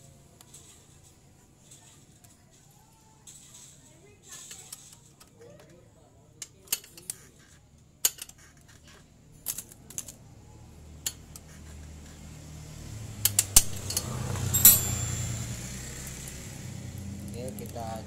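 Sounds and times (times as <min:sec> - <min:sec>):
metal tools clinking: 0:13.6 - 0:16.0.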